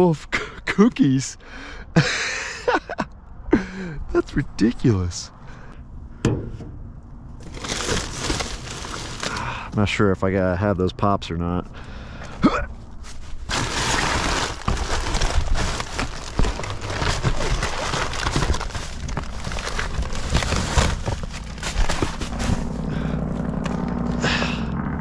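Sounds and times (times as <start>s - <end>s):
rustling of cardboard and packaging: 7.4s - 9.7s, 12.8s - 24.2s
steady low hum: 11.6s - 25.0s.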